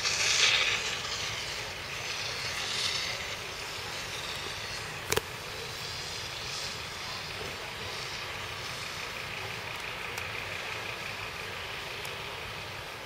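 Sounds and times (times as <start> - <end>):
distant vehicles: 0.0 - 13.0.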